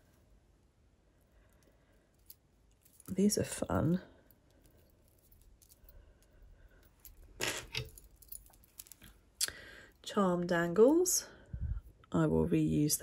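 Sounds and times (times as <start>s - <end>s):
metal jewellery clinking and jingling: 1.5s - 9.2s.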